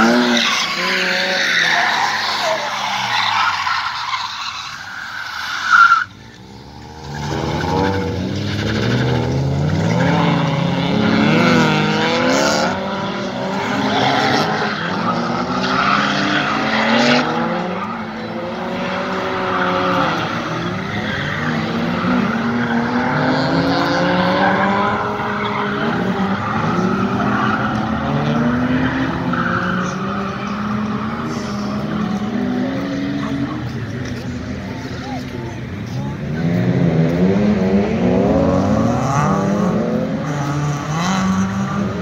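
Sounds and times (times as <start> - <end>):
tyres squealing: 0.0 - 6.2
car engines revving hard: 0.0 - 42.0.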